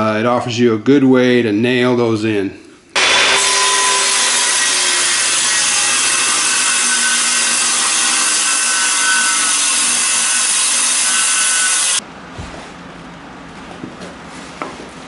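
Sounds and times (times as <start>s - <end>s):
circular saw cutting board: 3.0s - 12.0s.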